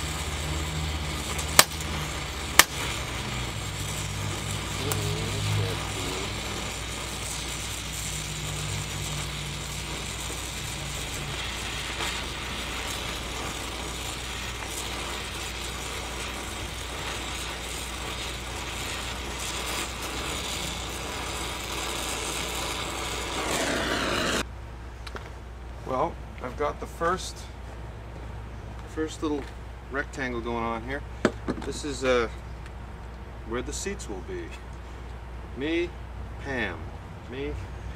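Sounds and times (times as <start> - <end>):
welding torch hissing and crackling: 0.0 - 24.5, 28.8 - 32.4.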